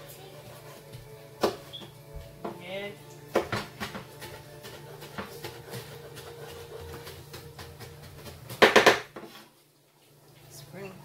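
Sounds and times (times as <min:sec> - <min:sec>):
knife chopping on wooden board: 0:03.3 - 0:09.4.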